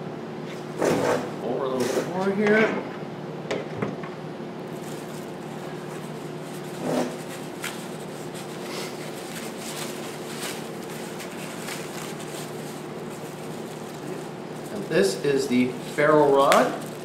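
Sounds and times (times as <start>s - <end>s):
packing wrap crinkling: 4.7s - 17.0s.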